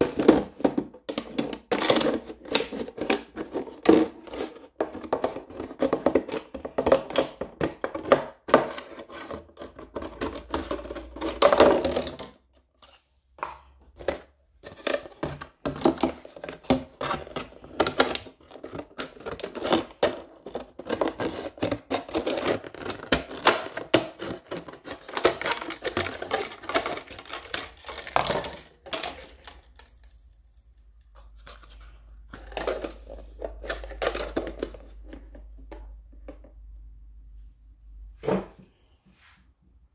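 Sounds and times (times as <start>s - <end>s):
plastic crinkling: 14.7s - 30.1s.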